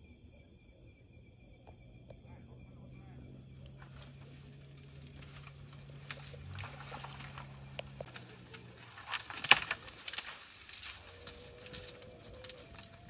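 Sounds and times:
steady low hum: 0.0s - 13.0s
twigs crackling and snapping: 3.6s - 13.0s.

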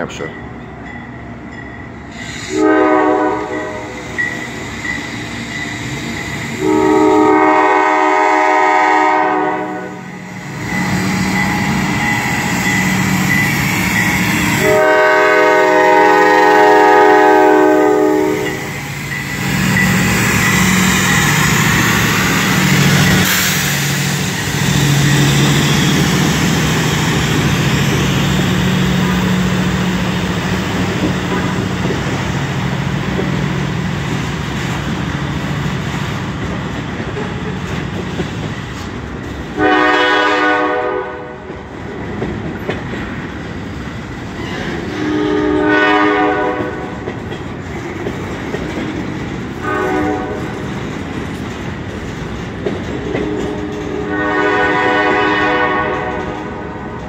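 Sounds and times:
crossing bell ringing: 0.0s - 2.1s, 10.2s - 14.6s, 18.3s - 21.6s, 24.8s - 25.9s
locomotive horn blasts: 2.5s - 3.9s, 6.6s - 10.1s, 14.6s - 18.6s, 39.6s - 41.4s, 45.0s - 46.9s, 49.6s - 50.5s, 53.2s - 56.7s.

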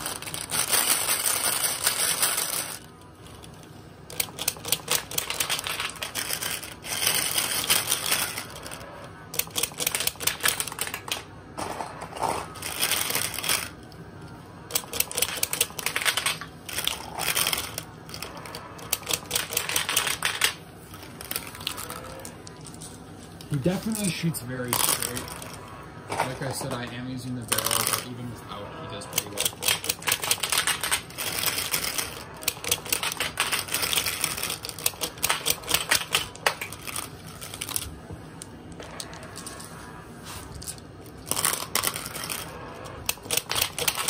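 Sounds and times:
toy launcher firing marbles: 14.7s - 22.3s, 41.2s - 44.0s.

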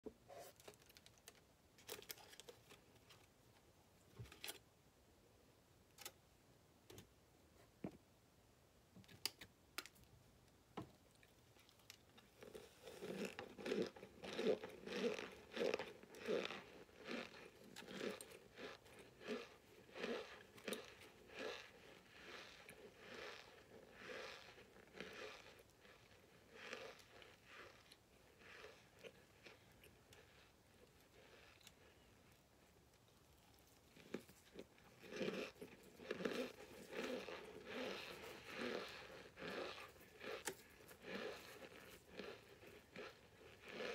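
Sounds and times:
crunchy chewing: 11.1s - 43.9s.

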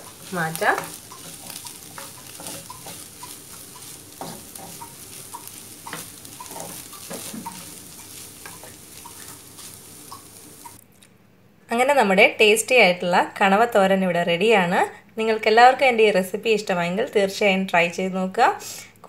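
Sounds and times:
food sizzling in a frying pan: 0.0s - 10.8s
wooden spatula scraping a pan: 0.0s - 10.8s.

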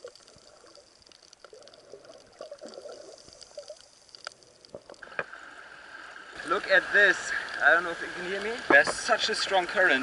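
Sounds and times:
muffled underwater water movement: 0.0s - 10.0s
small underwater clicks and crackles: 0.0s - 10.0s.

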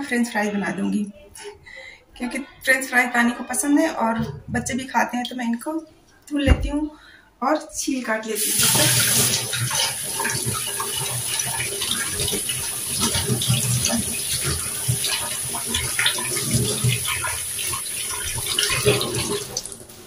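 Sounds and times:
tap running into sink: 8.4s - 19.8s
water splashing on potatoes: 8.4s - 20.0s.

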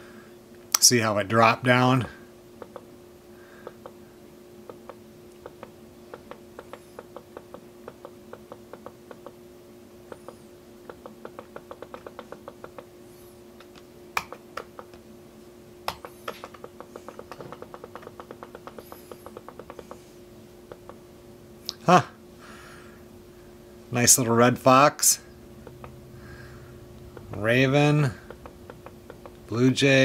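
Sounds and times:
faint steady hum: 0.0s - 30.0s
laptop clicks: 15.9s - 20.0s.

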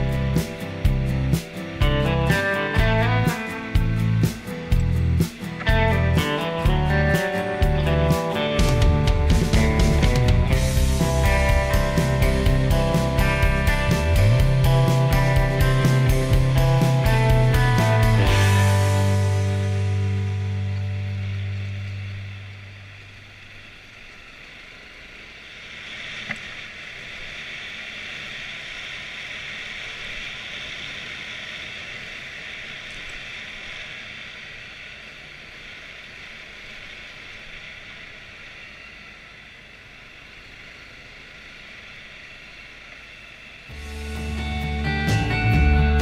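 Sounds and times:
background music: 0.0s - 23.0s, 43.7s - 46.0s
dirt bike riding noise: 0.0s - 46.0s.

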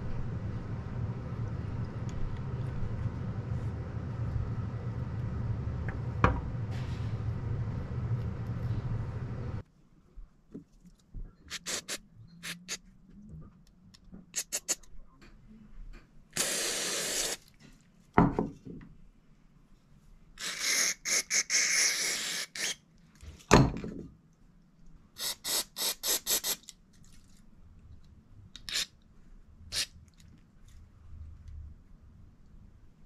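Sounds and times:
spray can hissing: 11.5s - 12.6s, 14.4s - 14.8s, 16.4s - 17.4s, 25.2s - 26.6s.

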